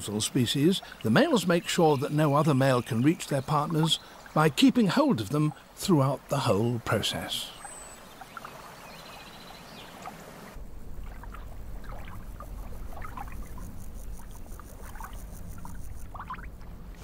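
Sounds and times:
deep water rumble: 0.0s - 17.0s
pond water lapping and trickling: 0.0s - 17.0s
water drips or bubbles: 10.9s - 17.0s.

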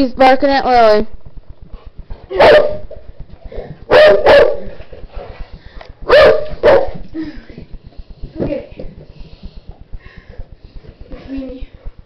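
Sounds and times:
dog barking: 2.3s - 2.8s, 3.9s - 4.7s, 6.1s - 6.9s.

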